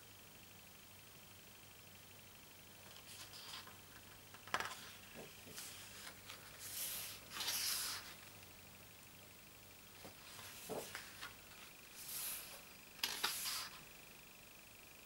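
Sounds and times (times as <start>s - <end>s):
page turning rustle: 2.9s - 8.2s, 10.0s - 13.8s
hands swishing over paper: 4.7s - 8.2s, 10.0s - 13.8s
paper page snap: 13.0s - 13.8s.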